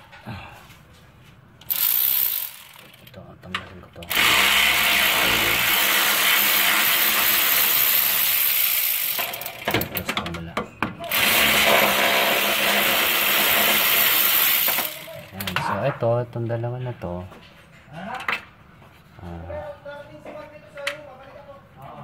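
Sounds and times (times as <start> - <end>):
power tool running: 1.7 - 3.0, 4.1 - 9.7, 11.1 - 15.4.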